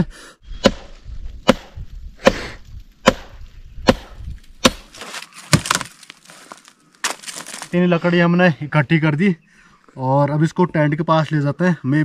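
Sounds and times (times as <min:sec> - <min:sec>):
firewood being chopped: 0:00.6 - 0:07.8.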